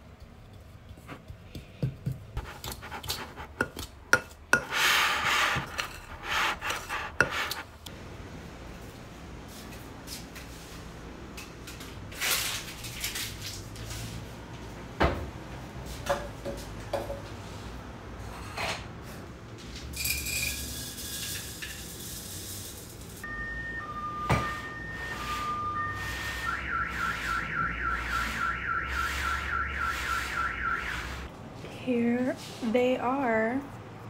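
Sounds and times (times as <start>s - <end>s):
fork scraping in glass bowl: 2.4s - 7.7s.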